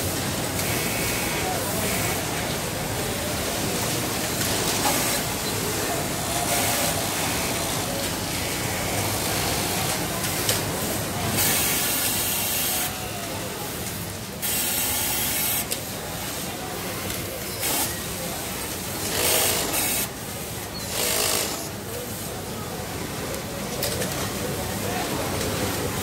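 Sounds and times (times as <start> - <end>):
factory noise: 0.0 - 26.0
industrial sewing machine stitching: 19.0 - 20.1, 20.9 - 21.7.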